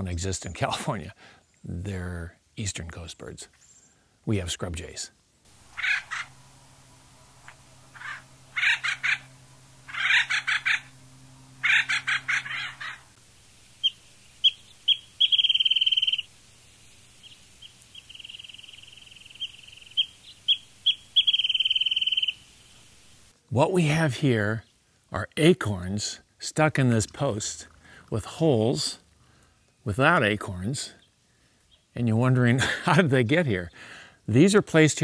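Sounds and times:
harsh raspy bird calls: 5.5s - 13.2s, 13.8s - 22.8s
bird singing rapid trill: 5.6s - 13.2s, 13.8s - 22.9s.

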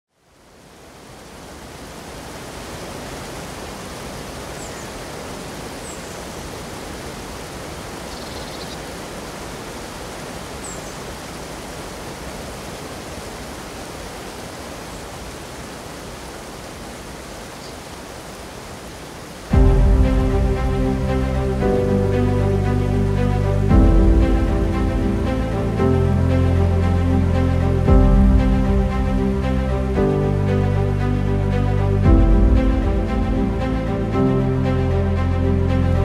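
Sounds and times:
whitewater rushing over rocks: 0.4s - 8.1s, 8.8s - 25.8s.

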